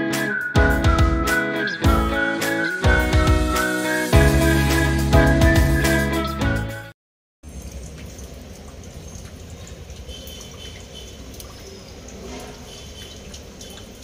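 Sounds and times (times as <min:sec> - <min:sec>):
outdoor background noise: 0:07.4 - 0:14.0.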